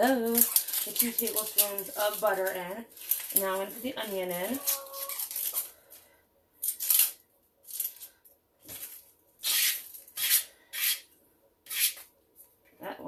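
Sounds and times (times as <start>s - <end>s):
onion skin crackling and tearing: 0.0s - 5.8s.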